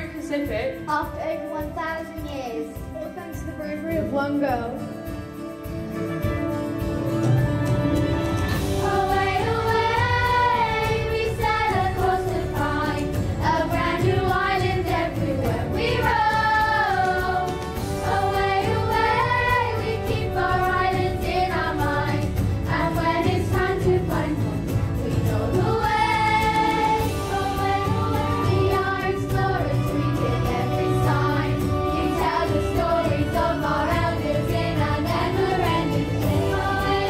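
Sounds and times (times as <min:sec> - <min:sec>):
instrumental accompaniment: 0:00.0 - 0:37.0
children's chorus singing: 0:08.7 - 0:37.0.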